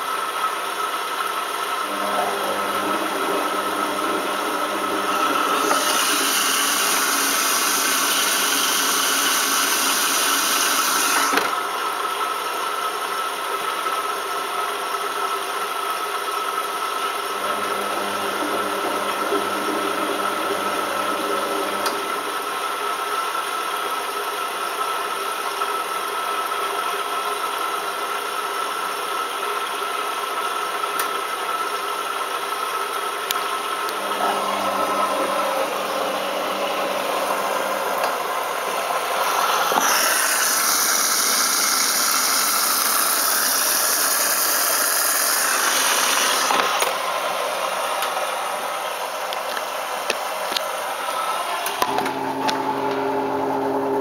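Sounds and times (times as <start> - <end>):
water filling hiss: 1.8 - 11.4, 33.5 - 51.8
washing machine drum humming: 1.8 - 11.6, 17.2 - 22.6, 33.9 - 43.8, 51.6 - 54.0.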